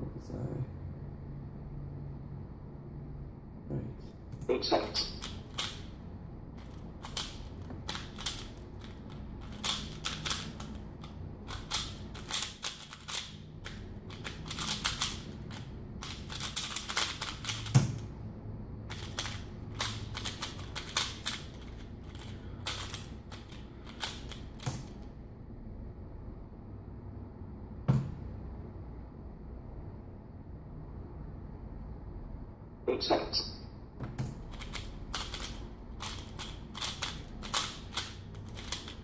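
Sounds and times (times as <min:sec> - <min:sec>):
puzzle cube turning clicks: 0:04.9 - 0:05.9, 0:06.6 - 0:18.1, 0:18.9 - 0:25.1, 0:34.1 - 0:39.0.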